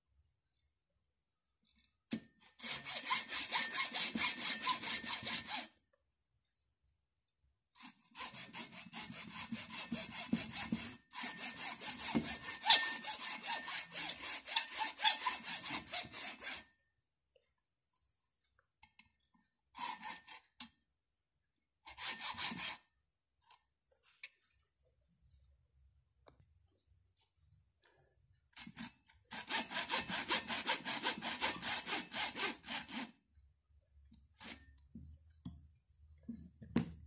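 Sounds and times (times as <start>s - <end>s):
hacksaw cutting plastic: 2.1s - 5.8s, 7.7s - 16.8s, 19.8s - 20.8s, 21.9s - 22.9s, 28.6s - 33.2s, 34.3s - 34.8s.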